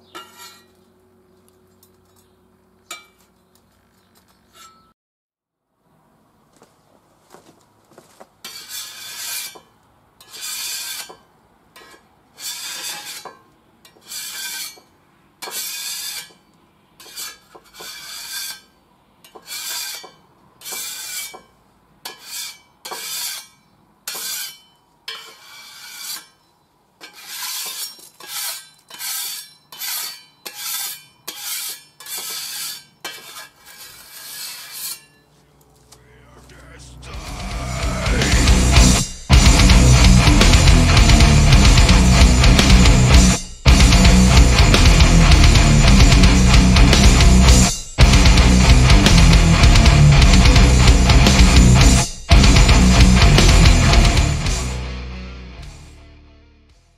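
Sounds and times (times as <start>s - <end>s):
metal scraper on hot plate: 0.2s - 0.7s, 8.4s - 16.4s, 17.0s - 26.4s, 27.0s - 35.3s.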